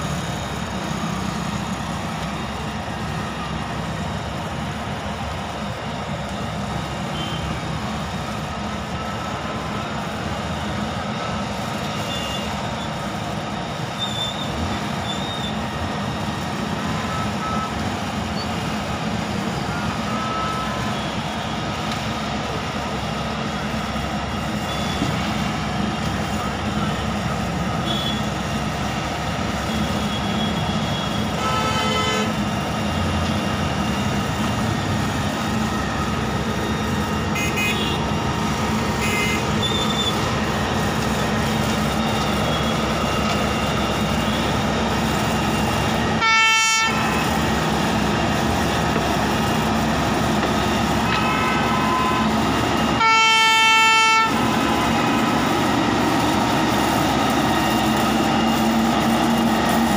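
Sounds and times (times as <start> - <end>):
diesel engine running: 0.0 - 59.9
machine horn blasts: 27.8 - 28.3, 30.0 - 32.4, 37.3 - 38.0, 39.0 - 39.9, 46.2 - 47.2, 51.0 - 52.4, 53.0 - 54.9.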